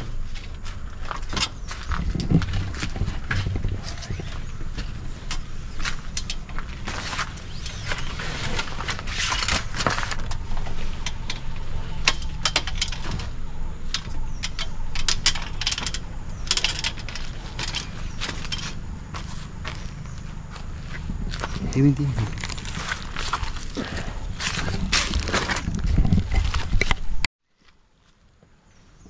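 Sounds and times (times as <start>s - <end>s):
tent fabric rustling: 0.0s - 11.0s
clicks and knocks on aluminium ladder: 0.0s - 19.8s
steady low rumble: 0.0s - 27.3s.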